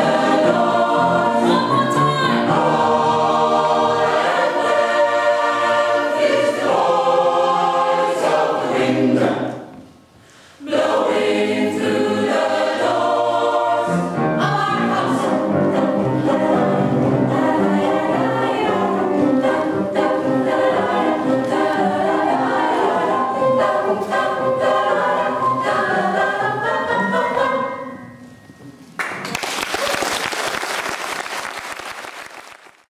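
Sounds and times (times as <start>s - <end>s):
mixed choir singing in parts: 0.0s - 9.8s, 10.6s - 28.0s.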